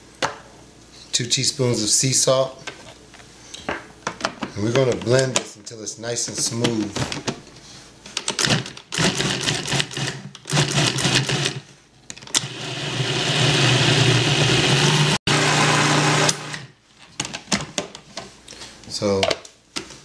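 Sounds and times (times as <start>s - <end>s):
food processor motor running: 9.0s - 11.6s, 12.4s - 16.6s.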